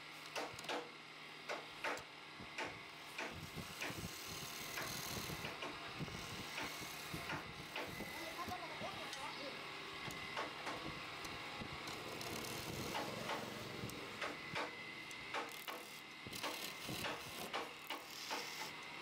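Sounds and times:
wood lathe humming: 6.0 - 8.6, 11.2 - 14.2, 15.0 - 18.8
hand tool scraping spinning wood: 15.8 - 18.7.

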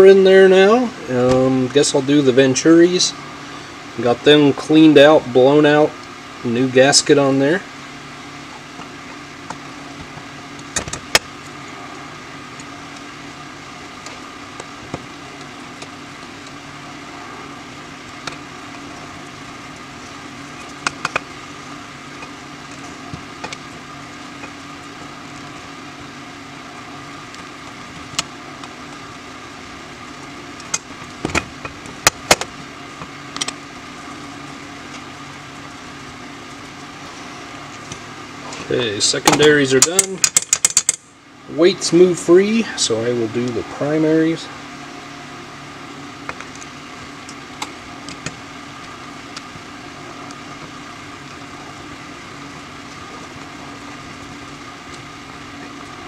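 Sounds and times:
steady hum: 0.0 - 56.0
metal parts clicking and tapping: 39.8 - 41.0.

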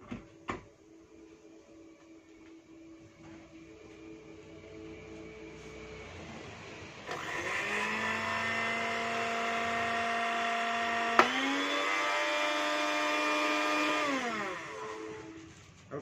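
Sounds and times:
blender motor whining: 7.0 - 15.4
blender switch click: 11.2 - 11.4.

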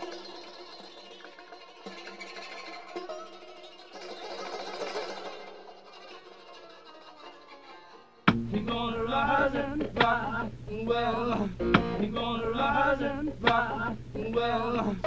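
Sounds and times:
background music with steady beat: 8.3 - 14.2.

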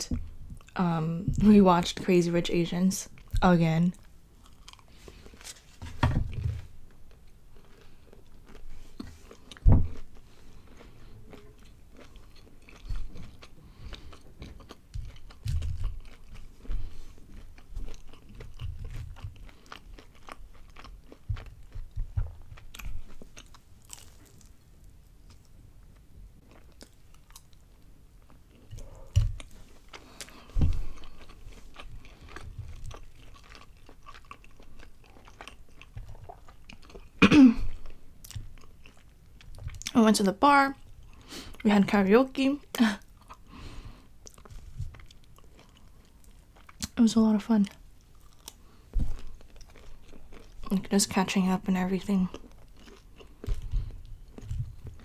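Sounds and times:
soft chewing: 0.1 - 1.5, 3.0 - 5.8, 6.6 - 40.0, 40.6 - 55.0
crisp crunching while chewing: 4.0 - 5.8, 6.9 - 40.0, 44.2 - 47.0, 47.7 - 50.8, 52.2 - 55.0.

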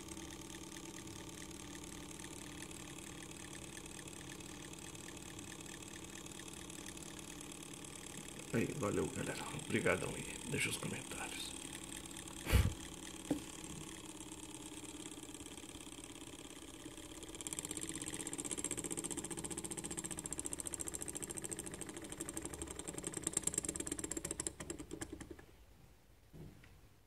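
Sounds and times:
small engine mechanical clatter: 0.0 - 25.5.

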